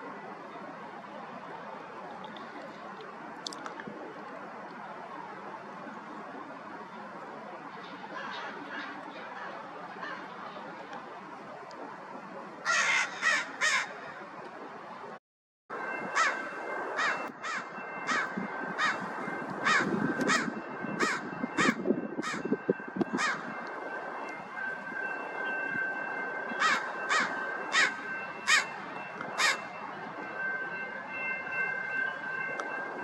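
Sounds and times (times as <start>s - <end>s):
crow cawing: 12.7s - 14.0s, 16.2s - 16.4s, 17.0s - 19.0s, 19.6s - 22.5s, 23.2s - 23.4s, 26.6s - 28.8s, 29.4s - 29.6s.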